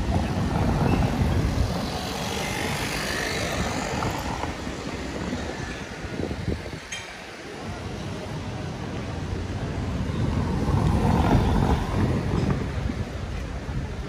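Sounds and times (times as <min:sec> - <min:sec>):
street noise hum: 0:00.0 - 0:14.0
car passing by: 0:10.0 - 0:13.1.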